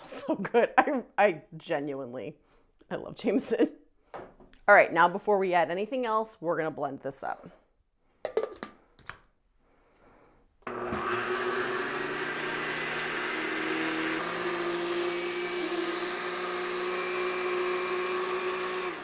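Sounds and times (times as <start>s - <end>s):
blender motor running: 10.6s - 19.0s.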